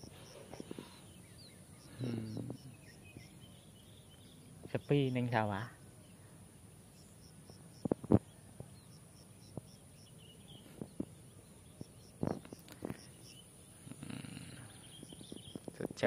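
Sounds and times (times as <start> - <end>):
distant birds chirping: 0.0 - 16.0.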